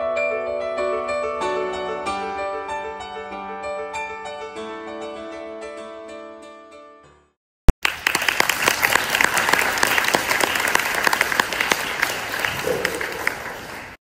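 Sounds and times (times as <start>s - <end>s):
audience clapping: 7.7s - 14.0s.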